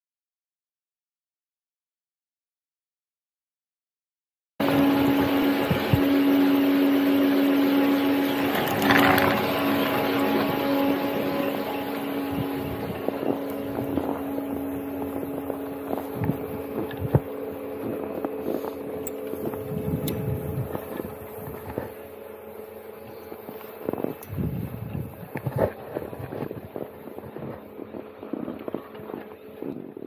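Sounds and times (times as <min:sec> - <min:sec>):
lift machinery humming: 0:04.6 - 0:29.6
snowboard sliding over snow: 0:08.3 - 0:30.0
wind on the microphone: 0:08.4 - 0:22.0, 0:23.0 - 0:30.0.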